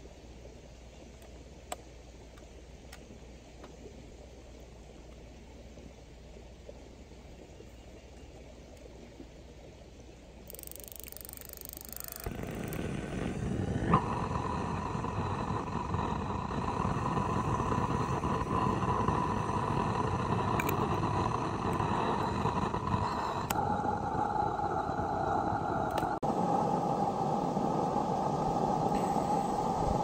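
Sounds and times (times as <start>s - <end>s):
gas hissing: 10.8s - 30.0s
burner rushing flame: 12.2s - 30.0s.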